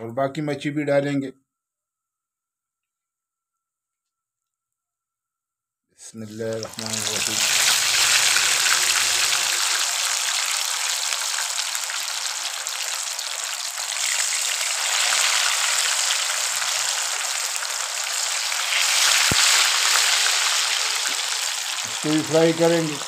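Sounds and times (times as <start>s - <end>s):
fish deep-frying sizzle: 6.3s - 23.0s.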